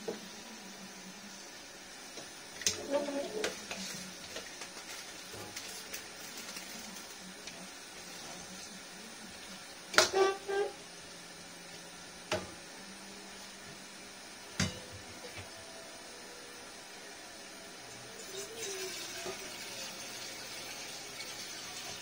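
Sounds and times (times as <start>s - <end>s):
faint steady hiss: 0.0s - 22.0s
metal spatula scraping wok: 10.0s - 10.8s.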